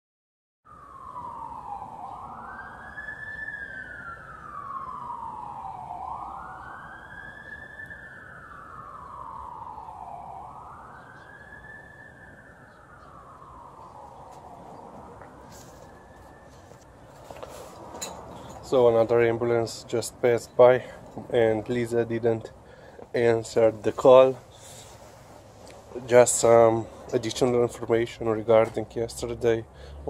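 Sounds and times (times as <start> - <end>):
ambulance siren wailing: 0.7 - 30.0.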